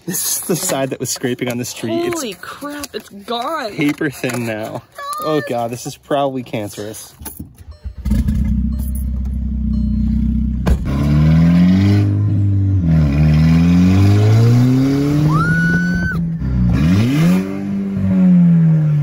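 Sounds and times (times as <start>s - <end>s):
car engine revving and accelerating: 8.0s - 19.0s.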